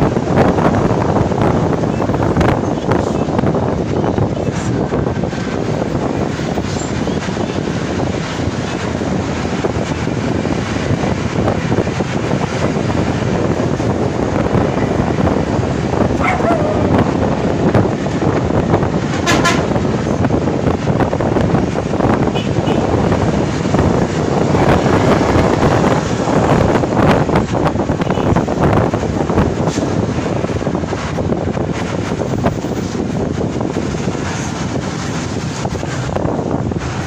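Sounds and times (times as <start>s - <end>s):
bus engine: 0.0s - 37.0s
road noise: 0.0s - 37.0s.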